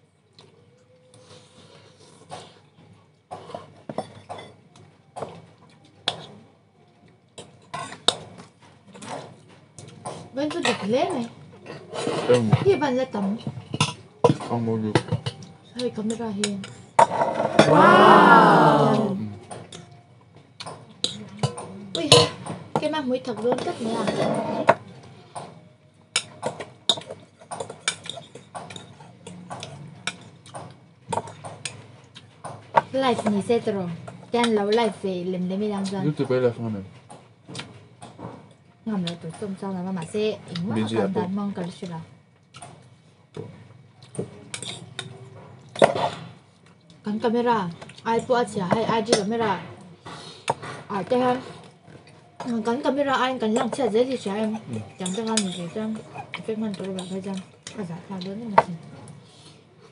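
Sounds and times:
cutlery clinking against bowls: 0:03.4 - 0:04.7, 0:07.4 - 0:10.9, 0:11.6 - 0:17.2, 0:20.6 - 0:22.5, 0:26.1 - 0:32.2, 0:44.2 - 0:45.2, 0:53.5 - 0:57.8.

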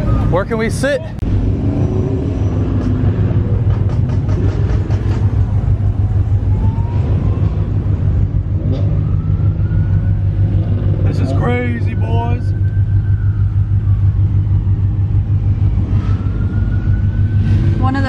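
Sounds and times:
car engine idling: 0:09.2 - 0:15.8.

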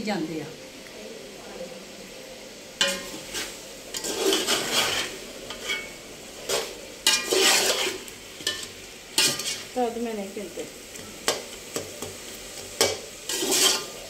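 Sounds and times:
food sizzling: 0:00.0 - 0:14.0
metal spoon scraping a pot: 0:02.8 - 0:09.7, 0:12.8 - 0:14.0.

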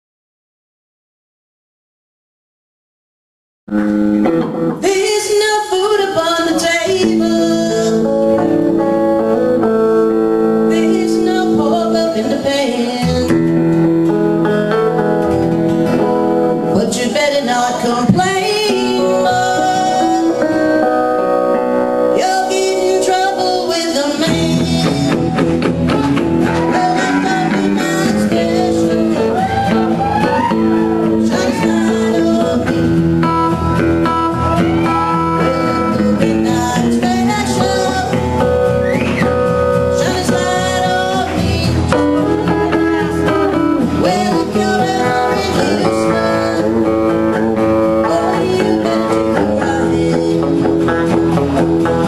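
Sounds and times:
electric guitar: 0:03.7 - 0:52.0
person singing: 0:03.8 - 0:52.0.

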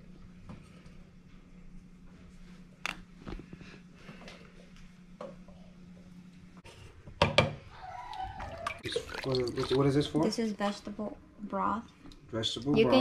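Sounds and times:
steady low hum: 0:00.0 - 0:07.8
knocks on kitchen counter: 0:07.2 - 0:07.6.

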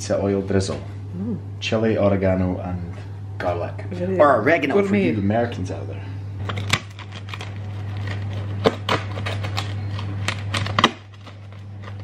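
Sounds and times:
steady low hum: 0:00.0 - 0:12.0
pizza wheel crunching crust: 0:06.4 - 0:12.0.

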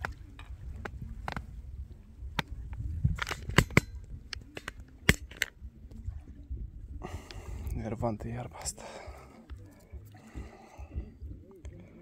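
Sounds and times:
fishing tackle clicks and knocks: 0:00.0 - 0:06.1, 0:08.5 - 0:12.0.

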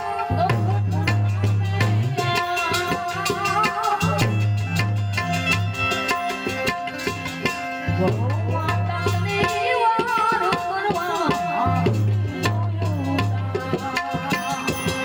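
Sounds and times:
person singing: 0:00.0 - 0:04.3
devotional music: 0:00.0 - 0:15.0
harmonium notes: 0:00.0 - 0:15.0
tabla strokes: 0:00.0 - 0:15.0.

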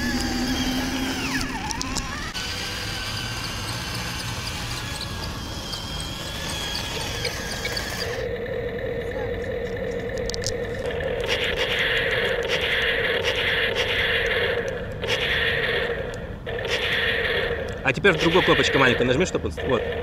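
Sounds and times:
toy tank electric motors whining: 0:00.0 - 0:20.0.

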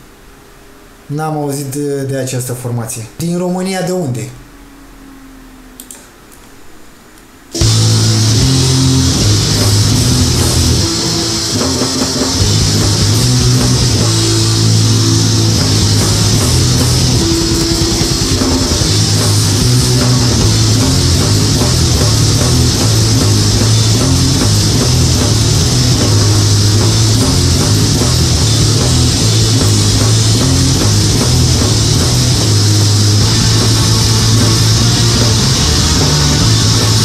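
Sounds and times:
distorted electric guitars: 0:03.8 - 0:37.0
black metal music: 0:07.5 - 0:37.0
drum kit: 0:07.5 - 0:37.0.

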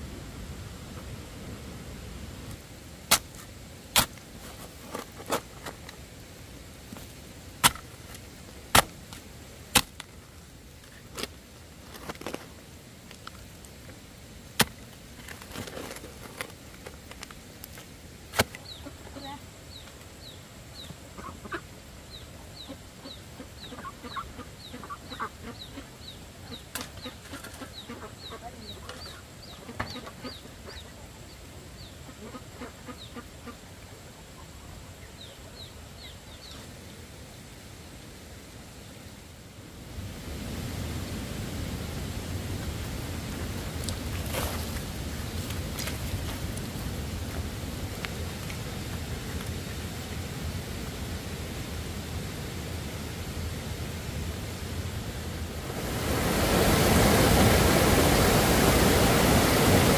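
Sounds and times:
chickens clucking: 0:18.6 - 0:19.4, 0:20.8 - 0:31.2, 0:32.0 - 0:33.6.

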